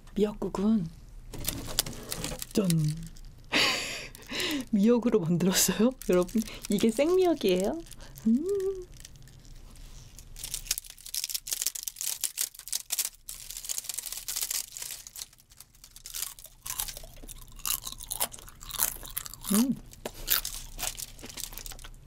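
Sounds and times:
wet seaweed crackling and rustling: 0:05.5 - 0:17.3, 0:19.9 - 0:22.0.

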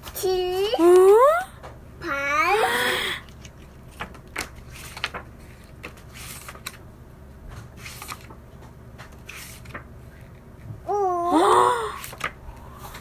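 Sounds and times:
cardboard pages flipping: 0:03.2 - 0:06.8, 0:07.5 - 0:10.7, 0:12.0 - 0:13.0.

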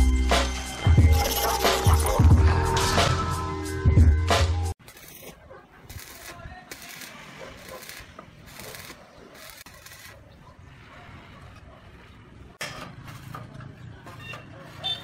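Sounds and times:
low rumble of street traffic: 0:05.6 - 0:15.0.

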